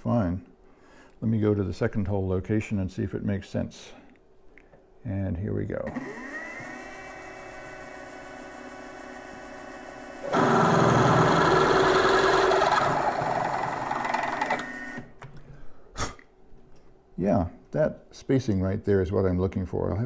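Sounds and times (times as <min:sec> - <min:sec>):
drill cutting into metal: 0:05.9 - 0:15.1
mill motor whining: 0:05.9 - 0:15.1.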